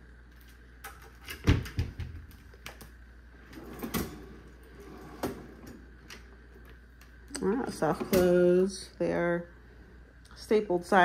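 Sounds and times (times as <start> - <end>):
cutlery drawer opening: 3.4 - 6.2.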